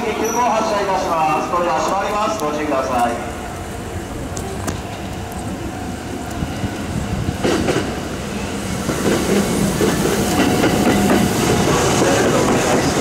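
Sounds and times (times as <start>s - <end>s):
train wheels clacking over rail joints: 7.2s - 8.1s, 8.7s - 13.0s.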